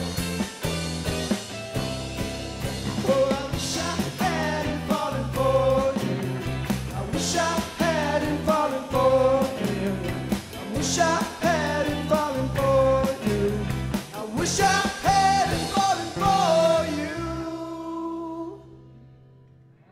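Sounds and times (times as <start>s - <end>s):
live indie rock band: 0.0s - 18.9s
man singing lead vocal: 3.0s - 18.8s.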